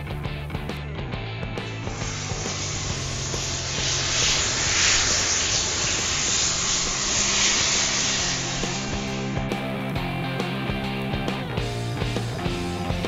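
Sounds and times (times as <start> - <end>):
low background music: 0.0 - 4.6, 8.8 - 13.0
sparklers hissing: 1.6 - 10.0.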